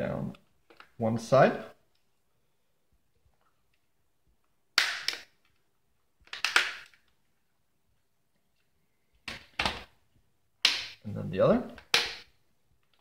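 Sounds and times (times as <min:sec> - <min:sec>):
plastic case clips snapping: 0:06.3 - 0:07.1.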